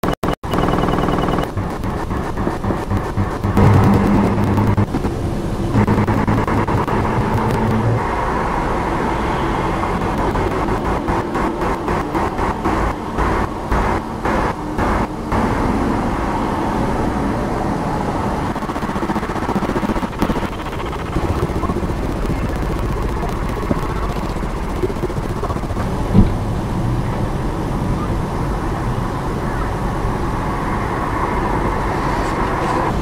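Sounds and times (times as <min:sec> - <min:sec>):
passing cars: 0:03.6 - 0:18.5, 0:25.8 - 0:33.0.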